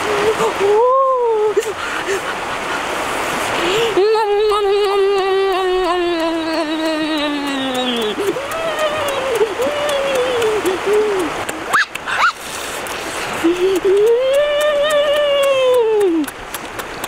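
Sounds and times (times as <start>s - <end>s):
steady rushing hiss: 0.0s - 4.7s, 7.0s - 17.0s
person making wordless tones: 3.6s - 12.1s, 13.3s - 16.3s.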